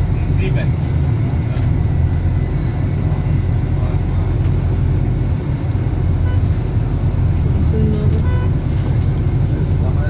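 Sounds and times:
bus engine: 0.0s - 10.0s
road traffic rumble: 0.0s - 10.0s
truck engine: 0.0s - 10.0s.

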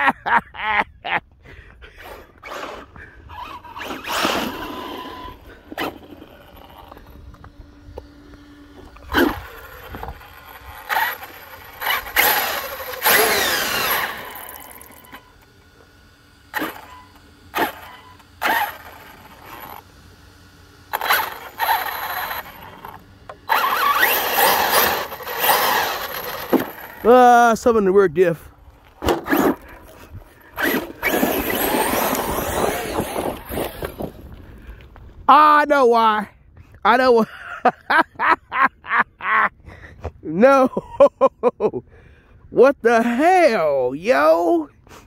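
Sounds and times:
toy truck motor whirring: 2.0s - 27.6s, 28.8s - 34.4s.

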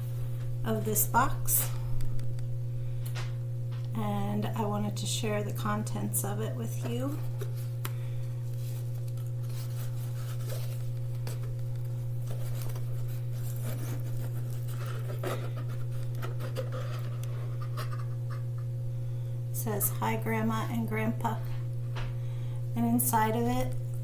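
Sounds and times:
steady low hum: 0.0s - 24.0s
cardboard and tissue paper rustling: 7.0s - 18.4s.

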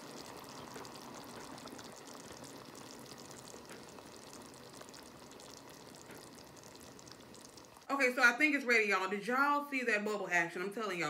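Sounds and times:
water trickling into pan: 0.0s - 7.9s
dip bubbling and sizzling: 0.0s - 8.2s.

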